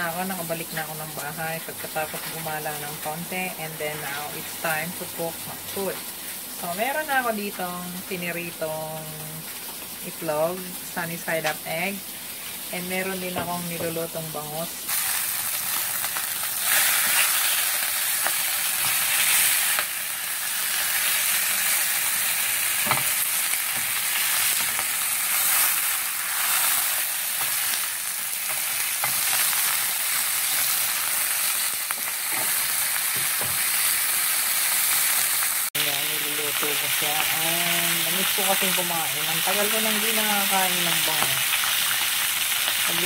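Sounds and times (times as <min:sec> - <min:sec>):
fish sizzling in hot oil: 0:03.8 - 0:07.2, 0:07.9 - 0:13.4, 0:14.0 - 0:43.0.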